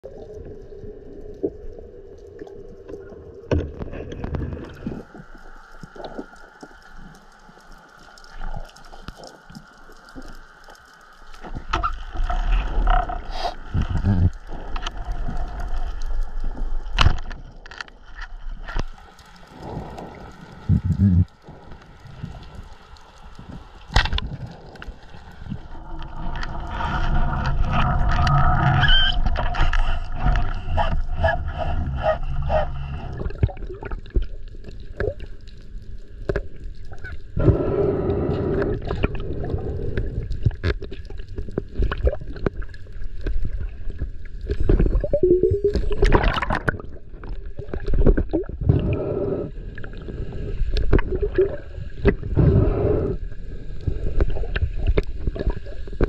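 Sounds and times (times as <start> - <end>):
low underwater rumbling: 11.2 - 56.0.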